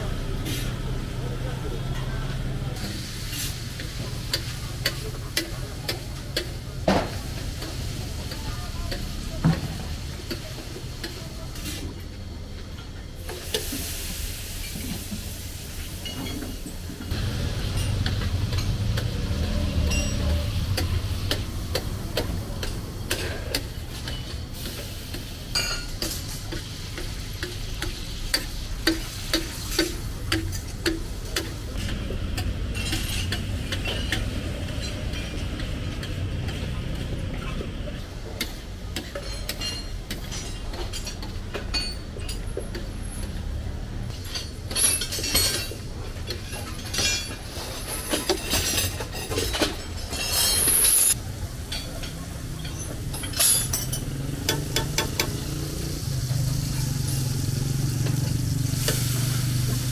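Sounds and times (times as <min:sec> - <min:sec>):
spatula tapping griddle: 0:20.7 - 0:34.2
liver sizzling on griddle: 0:24.0 - 0:31.5, 0:54.2 - 0:59.9.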